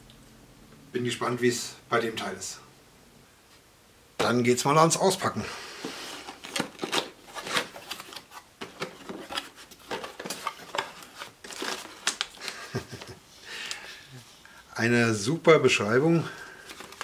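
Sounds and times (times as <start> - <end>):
packing paper rustling: 5.8 - 13.8, 16.2 - 17.0.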